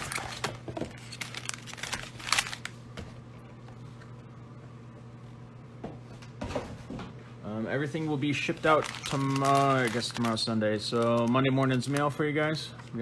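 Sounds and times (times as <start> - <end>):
plastic wrappers crinkling: 0.0 - 2.8, 8.2 - 12.5.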